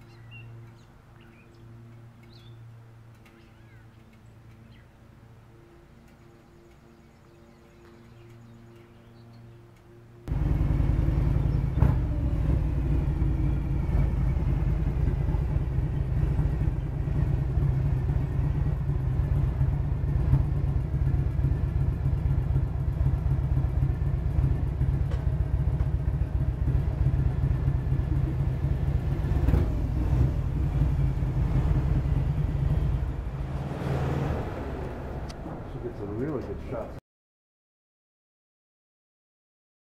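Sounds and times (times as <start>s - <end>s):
motorcycle engine rumbling: 10.3s - 37.0s.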